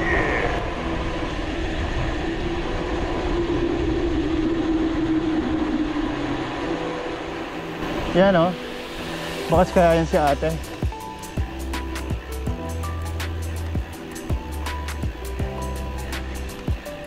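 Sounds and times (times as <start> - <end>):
wind rushing over microphone: 0.0 - 13.0
bike riding rumble and hum: 0.0 - 17.0.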